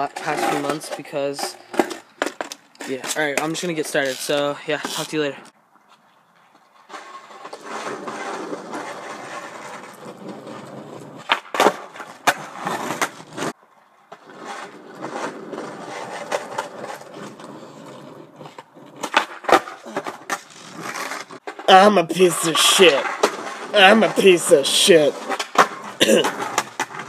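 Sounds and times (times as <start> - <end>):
skateboard wheels rolling on asphalt: 0.0 - 27.0
skateboard tail clacks and landings: 0.1 - 3.6, 6.5 - 21.7, 22.7 - 23.7, 25.1 - 27.0.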